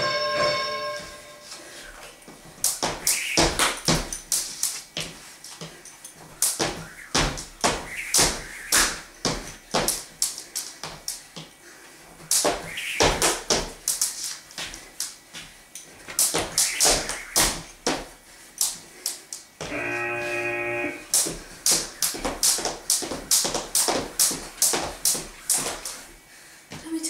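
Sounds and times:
jump rope slapping floor: 2.5s - 11.6s, 12.2s - 19.8s, 21.1s - 26.1s.

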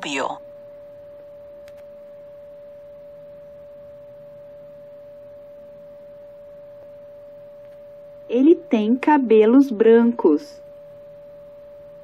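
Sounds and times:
electronic tone: 0.0s - 8.9s, 9.7s - 12.0s.

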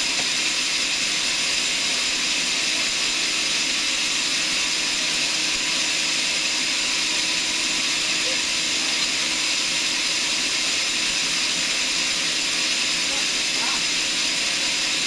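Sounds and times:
sawmill machinery running: 0.0s - 15.0s.

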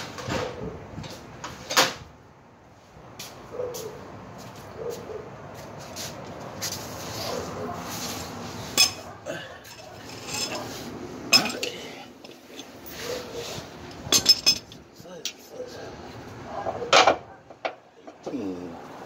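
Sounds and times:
rustle of handling: 3.2s - 8.8s
metal hand tools clinking: 8.8s - 9.1s, 9.7s - 10.7s, 11.3s - 12.8s, 14.0s - 15.4s.

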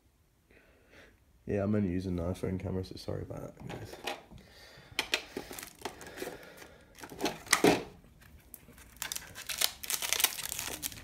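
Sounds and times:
plastic packaging crinkling: 5.3s - 11.0s.

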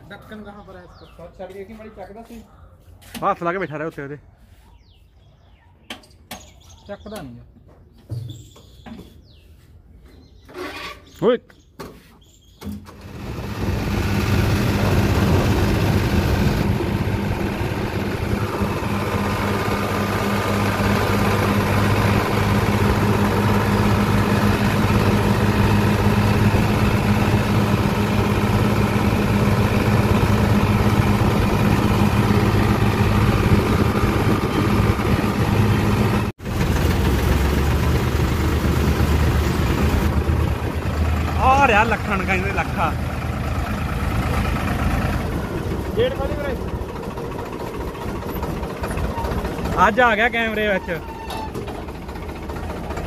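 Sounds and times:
diesel tractor engine running: 12.7s - 53.0s.

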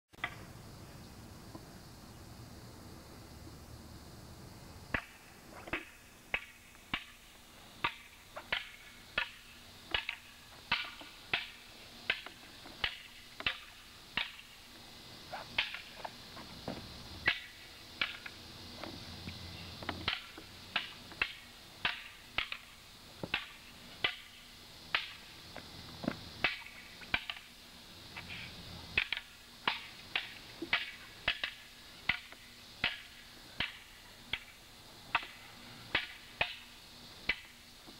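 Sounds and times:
wooden staffs clacking: 7.8s - 14.5s, 15.3s - 16.2s.

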